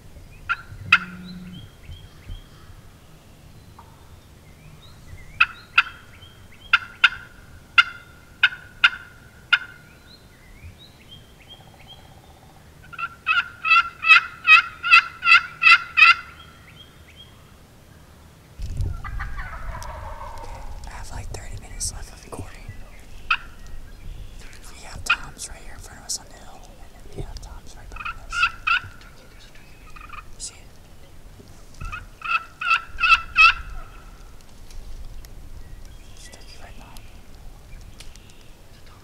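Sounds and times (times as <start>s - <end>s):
wild turkey yelping: 0.5s - 1.6s, 5.4s - 9.9s, 11.5s - 16.6s, 19.0s - 21.1s, 22.1s - 25.9s, 27.8s - 30.4s, 31.8s - 34.3s.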